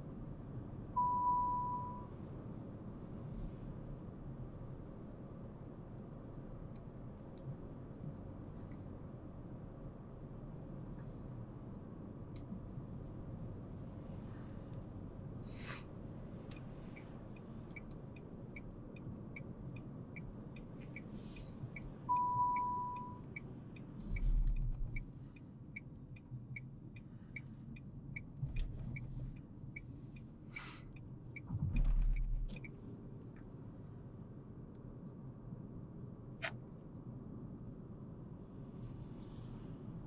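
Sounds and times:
engine and road noise: 0.0 - 40.0
short beep: 1.0 - 2.1, 22.1 - 23.2
turn signal ticking: 16.3 - 33.5.

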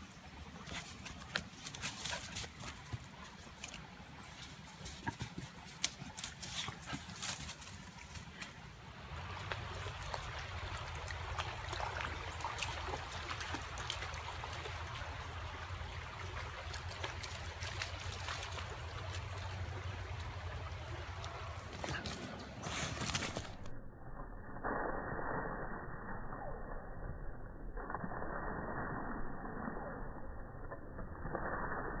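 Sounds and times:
creek running over rocks: 0.0 - 23.7
dog splashing through water: 9.1 - 23.7.

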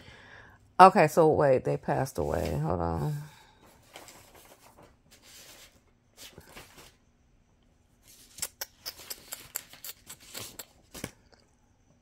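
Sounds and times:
paper sheets rustling: 2.2 - 7.0.

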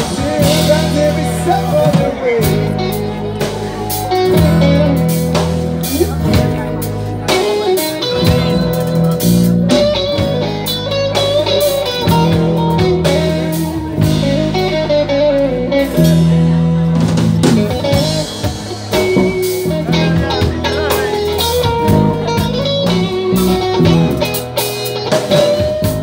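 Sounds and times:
drums: 0.0 - 26.0
electric bass: 0.0 - 26.0
lead guitar: 0.0 - 26.0.

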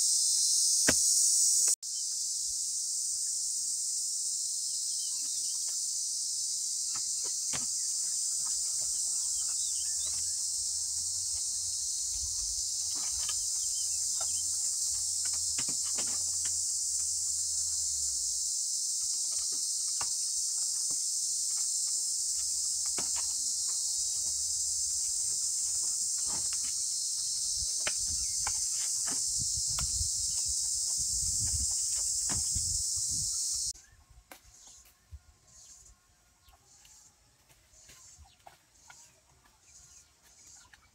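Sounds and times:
high-pitched insect drone: 0.0 - 34.8.

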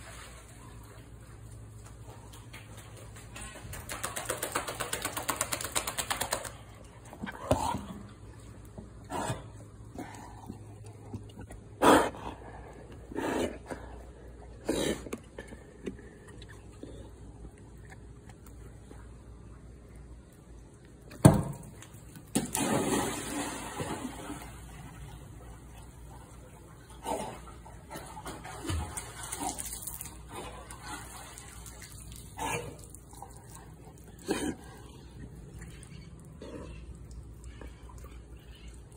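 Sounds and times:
water splashing and dripping: 21.1 - 38.9.

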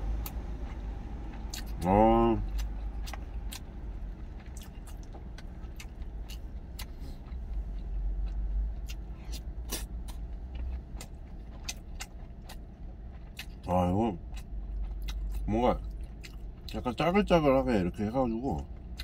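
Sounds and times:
chewing food: 0.0 - 19.0.

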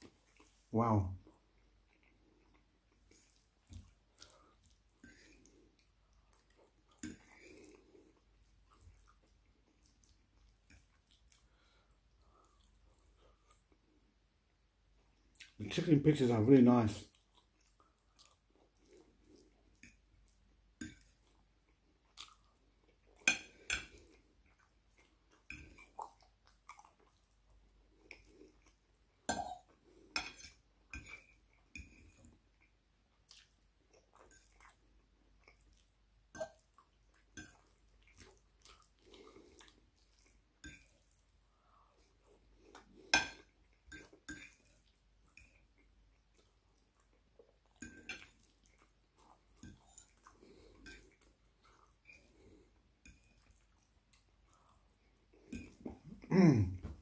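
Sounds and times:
quiet chewing: 0.0 - 15.8, 17.0 - 57.0.

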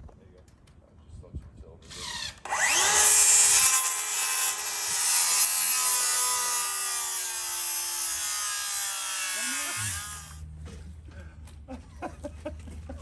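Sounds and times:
circular saw whining: 1.9 - 10.4
saw blade rasping through wood: 2.4 - 10.4.

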